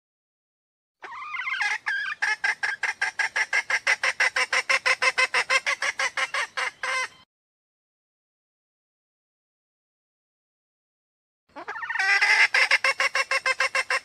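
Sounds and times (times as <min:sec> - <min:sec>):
hen calling with rapid clucks: 0:01.0 - 0:07.2, 0:11.5 - 0:14.0.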